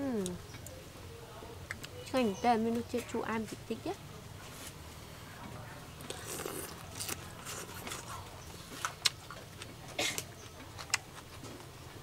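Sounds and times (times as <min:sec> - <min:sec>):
mouth and chewing sounds: 0:06.0 - 0:12.0.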